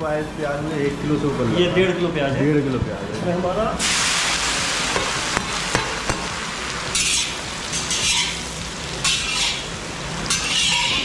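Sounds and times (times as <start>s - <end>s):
onions sizzling in hot oil: 3.8s - 11.0s.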